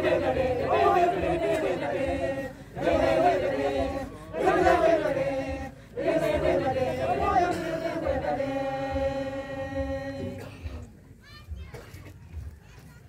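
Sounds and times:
church choir singing a hymn: 0:00.0 - 0:10.4.

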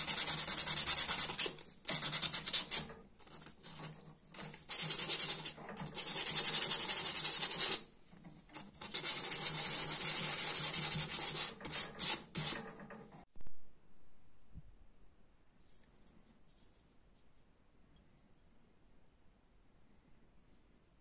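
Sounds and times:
file rasping on wire: 0:00.0 - 0:13.1.

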